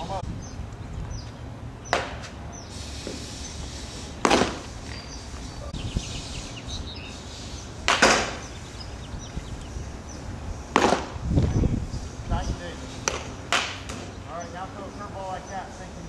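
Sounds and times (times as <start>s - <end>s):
baseball hitting catcher's mitt: 10.7s - 11.1s, 13.0s - 14.1s.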